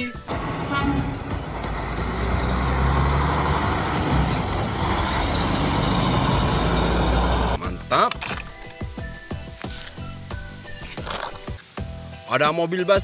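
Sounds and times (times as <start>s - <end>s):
road noise: 0.0s - 7.6s
truck engine rumbling: 0.3s - 7.6s.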